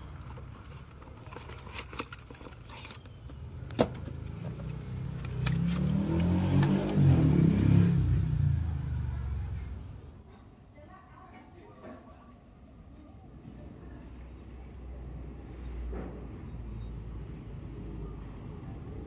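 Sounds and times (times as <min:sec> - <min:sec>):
cardboard package rustling: 0:00.1 - 0:05.8
vehicle engine passing by: 0:04.2 - 0:10.1.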